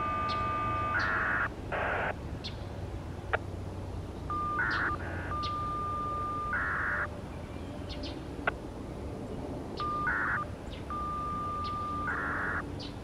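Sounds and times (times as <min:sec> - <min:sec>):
scanner beep: 0:00.0 - 0:02.0, 0:04.3 - 0:07.1, 0:09.8 - 0:12.7
data noise burst: 0:00.0 - 0:02.2, 0:04.3 - 0:07.1, 0:09.8 - 0:12.6
faint bird chirps: 0:09.8 - 0:13.0.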